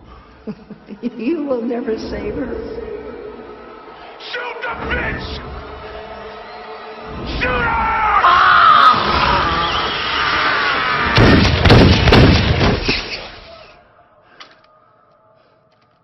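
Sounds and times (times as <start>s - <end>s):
shrill wavering scream: 6.0s - 11.3s
rapid handgun shots: 11.2s - 13.0s.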